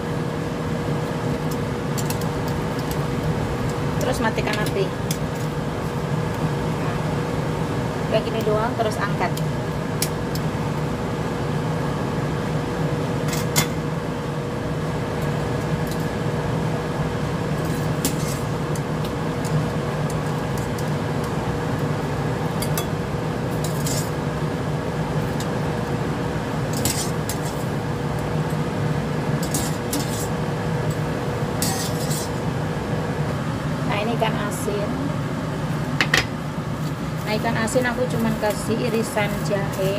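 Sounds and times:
steady hum: 0.0 - 39.9
metal utensils clinking on a pot: 31.6 - 32.3.

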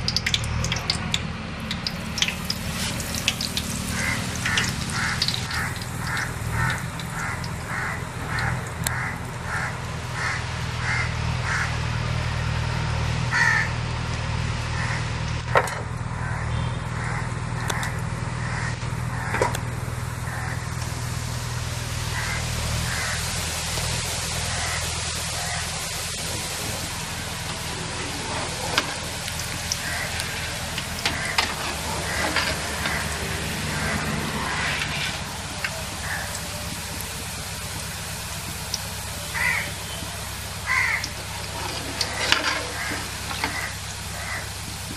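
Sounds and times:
batter sizzling in hot oil: 0.0 - 11.9, 18.9 - 44.9
crow cawing: 3.3 - 11.8, 13.3 - 13.8, 14.7 - 15.1, 16.2 - 19.5, 20.2 - 20.8, 22.1 - 23.3, 24.5 - 25.8, 26.4 - 36.7, 39.2 - 44.6.

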